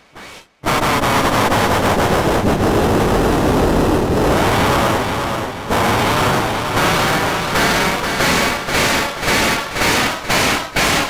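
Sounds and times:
distorted train horn blare: 4.4 - 10.8.

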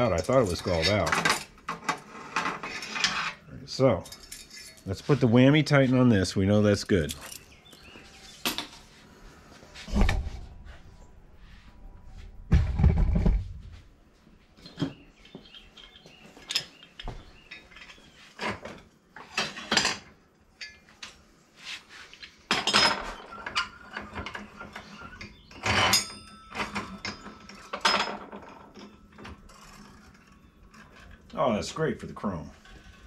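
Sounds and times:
metal tools clanking: 0.0 - 8.8, 16.4 - 21.0, 22.2 - 33.0
heavy thump: 12.5 - 13.7
ringing metal clang: 25.6 - 29.5.

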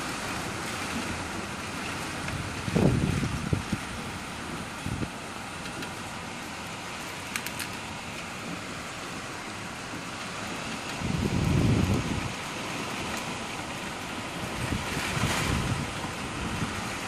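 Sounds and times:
storm wind and driving rain: 0.0 - 17.0
wind buffeting microphone: 2.2 - 5.3, 10.8 - 13.1, 14.3 - 17.0.

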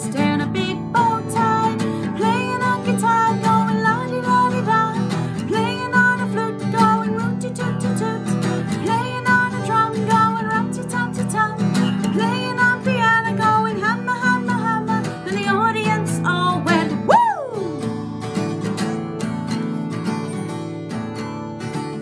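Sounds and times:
woman singing: 0.0 - 18.0
acoustic guitar strumming: 0.0 - 22.0
woman shouting woo: 17.0 - 17.8.

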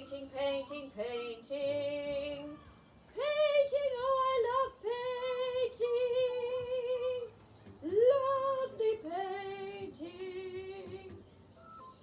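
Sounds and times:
woman singing wordless tune: 0.0 - 12.0.

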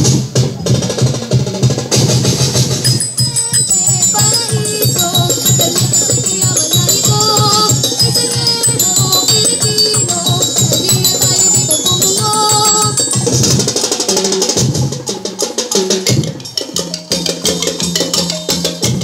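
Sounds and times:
drum beat: 0.0 - 19.0
wavering melody line: 2.9 - 15.2
shaking rattles: 3.9 - 15.1.

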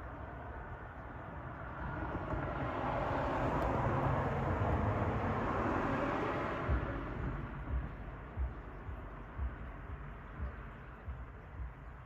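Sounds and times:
vehicle passing by: 0.4 - 8.6.

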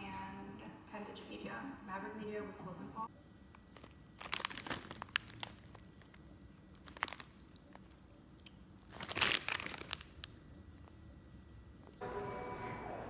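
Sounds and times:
plastic snack bag crinkling: 3.6 - 10.4.

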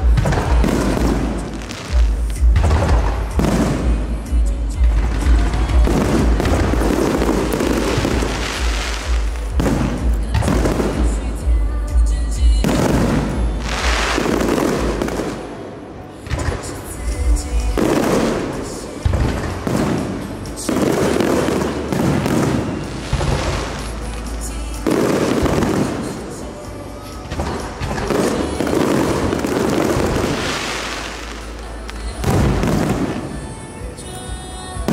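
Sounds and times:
music playing: 0.0 - 34.9.

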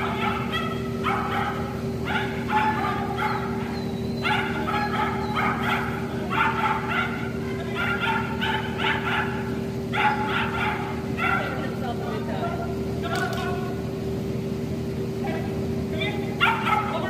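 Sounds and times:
dog barking: 0.0 - 11.7, 16.4 - 17.0
steady low hum: 0.0 - 17.0.

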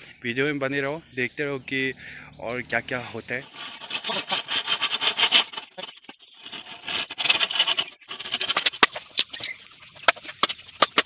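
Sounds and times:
hand saw cutting bamboo: 3.4 - 11.0.

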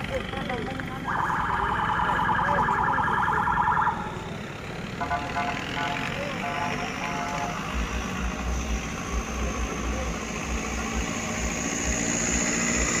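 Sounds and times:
diesel truck engines running: 0.0 - 13.0.

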